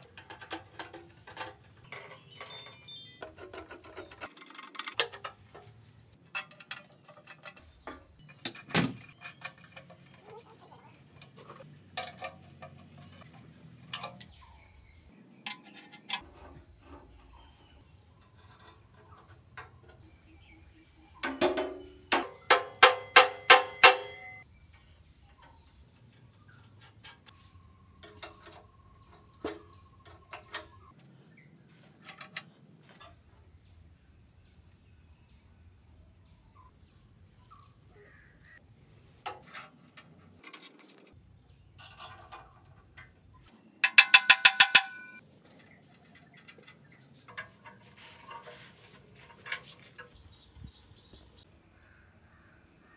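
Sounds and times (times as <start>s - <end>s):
clicks and knocks on metal parts: 0.0s - 14.3s, 15.4s - 16.3s, 21.2s - 24.4s, 28.0s - 30.9s, 43.8s - 50.2s
ringing metal taps: 21.2s - 24.4s, 28.0s - 30.9s, 43.8s - 50.2s.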